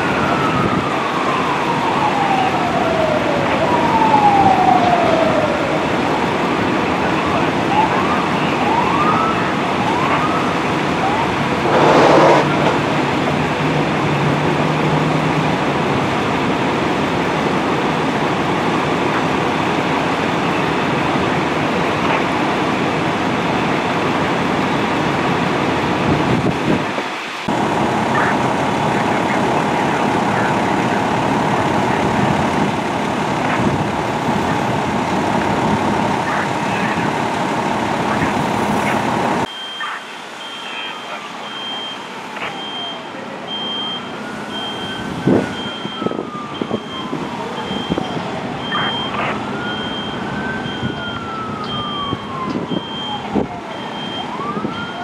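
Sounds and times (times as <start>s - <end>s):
siren whoops: 0.0s - 15.6s, 35.5s - 55.0s
diesel engines idling: 0.0s - 26.0s, 27.4s - 55.0s
street traffic: 0.0s - 55.0s.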